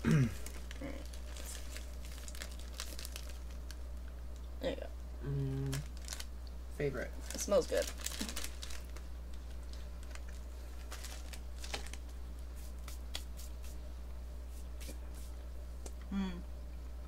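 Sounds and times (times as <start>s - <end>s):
low hum: 13.8s - 17.0s.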